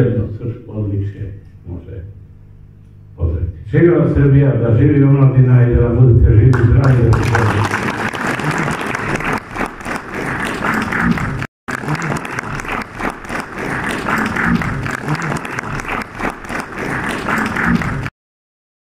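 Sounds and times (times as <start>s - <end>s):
audience applauding: 6.5s - 18.1s.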